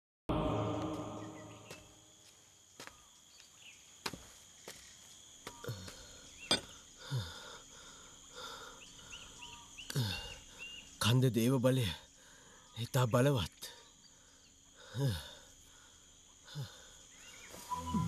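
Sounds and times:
high insect drone: 0.3s - 18.0s
ringing tone: 17.7s - 18.0s.

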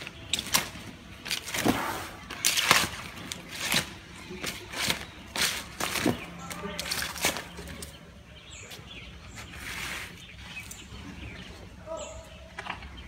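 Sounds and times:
soft rustle: 9.3s - 10.9s.

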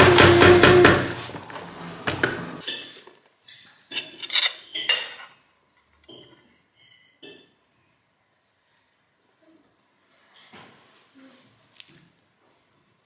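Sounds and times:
metal utensils clinking on dishes: 2.6s - 8.9s.

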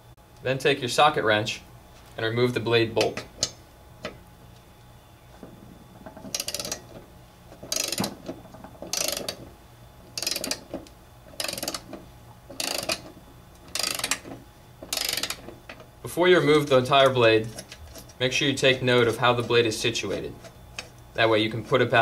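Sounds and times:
socket wrench ratchet clicking: 6.2s - 6.8s, 7.6s - 8.2s, 8.8s - 9.4s, 10.1s - 10.6s, 11.4s - 12.0s, 12.6s - 13.1s, 13.7s - 14.3s, 14.9s - 15.4s.

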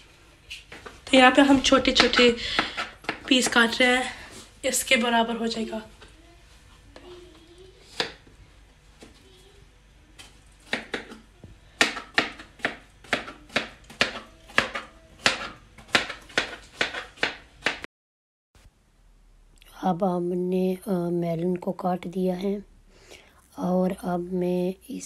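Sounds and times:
knife chopping on plastic board: 0.7s - 3.6s, 7.9s - 8.3s, 10.6s - 17.9s.

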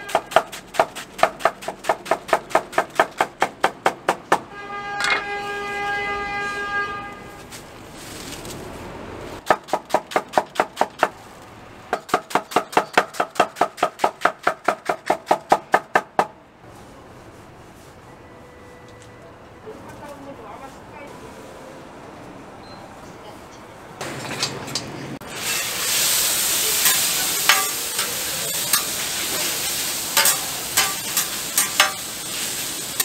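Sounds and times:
steady horn tone: 4.4s - 7.6s
soft rustling: 7.2s - 8.9s.

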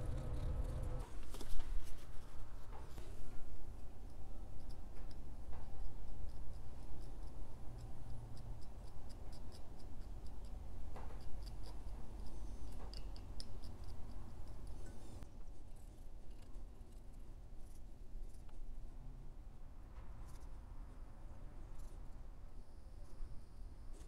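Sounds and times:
steady low hum: 0.0s - 1.2s
metal pick ticking and scraping: 4.1s - 15.2s.

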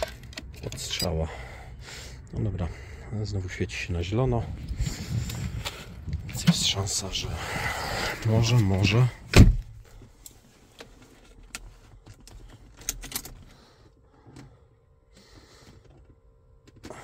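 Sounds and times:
car keys jingling: 0.0s - 1.2s, 12.1s - 13.5s
faint steady hum: 0.0s - 17.0s
key clicking in ignition: 11.4s - 13.5s.

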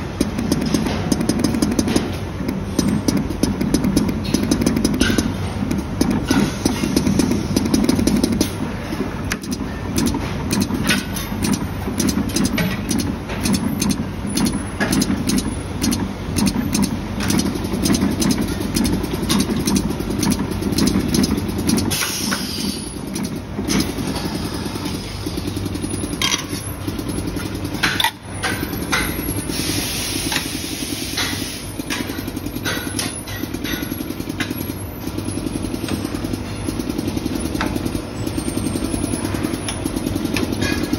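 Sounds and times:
machinery pulsing drone: 0.0s - 22.1s, 22.7s - 27.8s
machine clicks and clacks: 0.0s - 40.9s.

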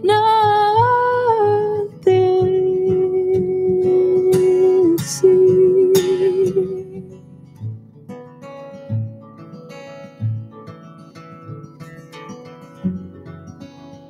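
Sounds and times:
woman singing long notes: 0.0s - 7.2s
plucked acoustic guitar: 0.0s - 14.0s.

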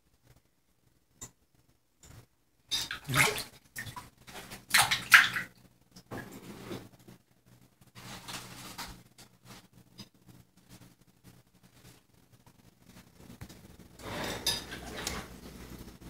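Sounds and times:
water splashing in a sink: 2.7s - 6.3s.

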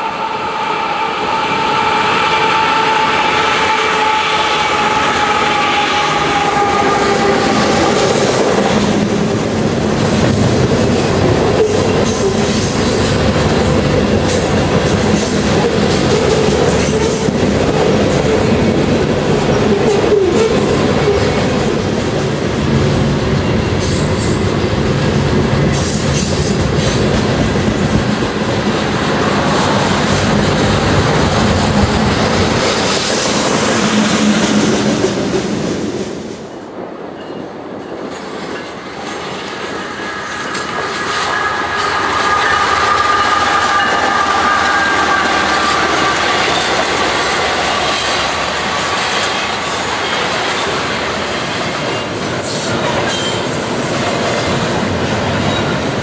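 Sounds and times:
train wheels rumbling on rails: 0.0s - 56.0s
locomotive engine whine: 39.9s - 47.7s.

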